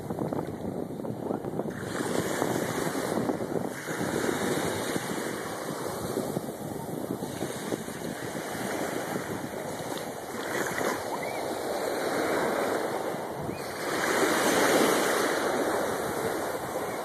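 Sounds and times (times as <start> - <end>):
small waves washing on sand: 0.1 - 17.0.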